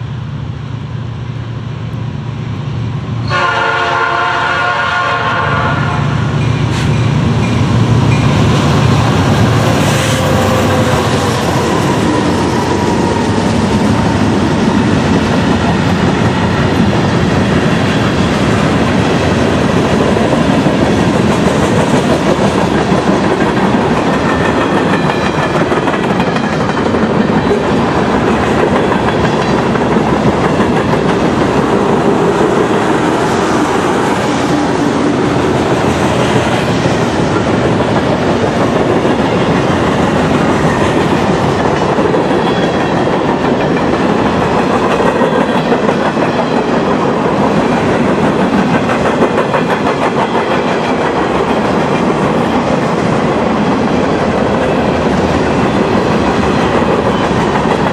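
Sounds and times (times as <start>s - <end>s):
locomotive rumble: 0.0s - 57.9s
train air horn blast: 3.2s - 6.2s, 9.7s - 11.4s
train wheels clattering over rail joints: 6.4s - 57.9s.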